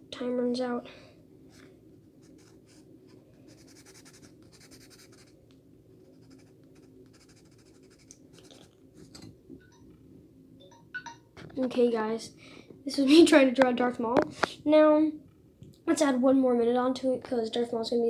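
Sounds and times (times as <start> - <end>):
pencil scratching on paper: 2.2 - 5.4, 6.0 - 9.2.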